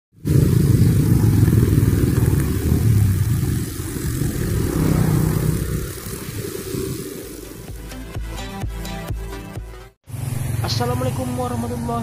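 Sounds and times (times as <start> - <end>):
motorcycles and cars passing: 0.2 - 8.0, 10.1 - 12.0
brush cutter running: 0.3 - 7.6.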